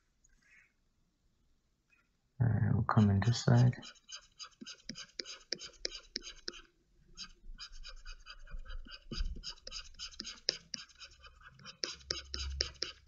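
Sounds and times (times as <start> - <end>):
stylus scratching on drawing tablet: 2.9 - 13.0.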